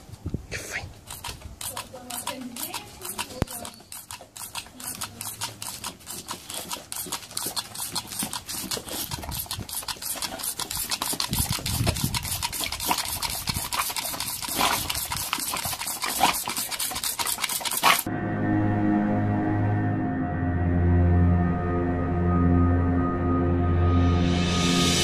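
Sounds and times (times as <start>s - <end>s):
toy grabber jaws clacking: 1.0s - 18.1s.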